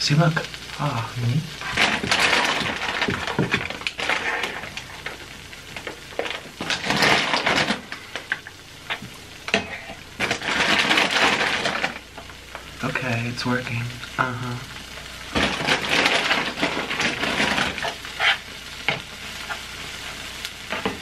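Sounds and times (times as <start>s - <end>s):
cheese sizzling: 0.0s - 21.0s
spatula scraping griddle: 1.6s - 12.0s, 15.3s - 21.0s.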